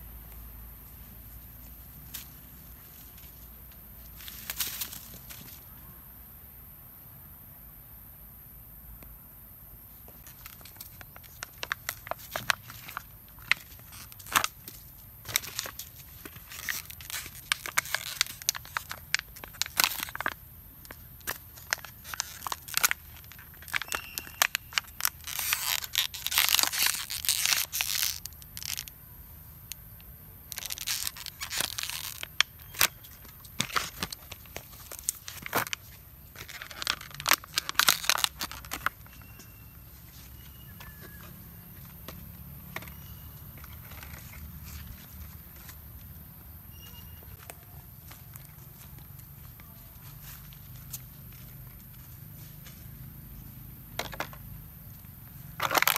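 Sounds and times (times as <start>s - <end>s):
plastic bottle crinkling: 10.1s - 28.9s, 30.5s - 39.4s, 55.6s - 55.9s.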